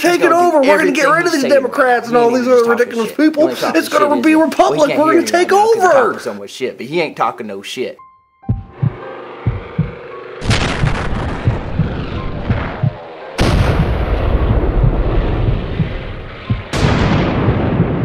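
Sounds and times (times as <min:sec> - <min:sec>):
explosion booms with rolling rumble: 0:10.4 - 0:18.0.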